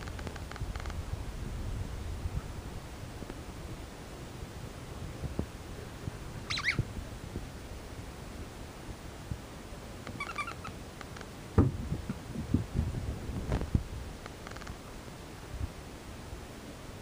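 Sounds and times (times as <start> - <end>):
high squeaks: 6.5 - 6.8, 10.1 - 10.7.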